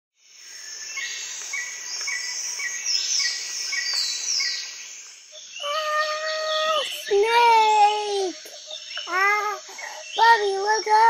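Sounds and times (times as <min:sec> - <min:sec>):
high insect drone: 0:00.2 - 0:11.0.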